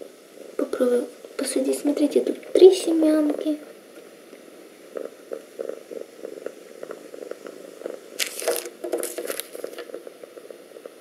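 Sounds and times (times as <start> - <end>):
cat purring: 0.0 - 11.0
plastic bag crinkling: 8.2 - 9.9.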